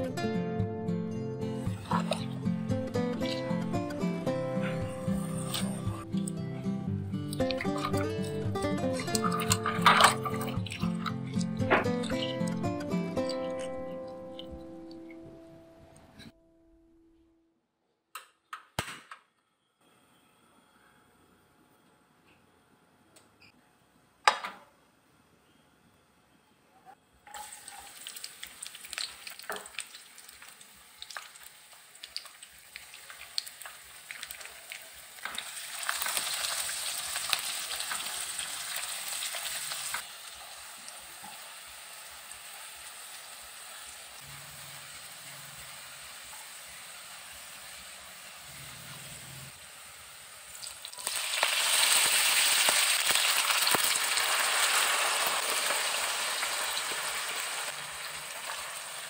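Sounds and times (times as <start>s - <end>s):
crackling pops: 18.1s - 19.4s
garlic sizzling in oil: 27.3s - 59.0s
pasta sizzling loudly in oil: 27.4s - 59.0s.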